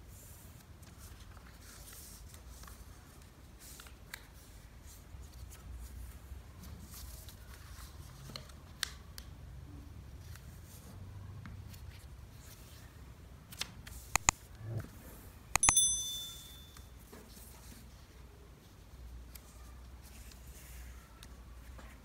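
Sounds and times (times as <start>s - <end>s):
notification bell ding: 15.6s - 16.9s.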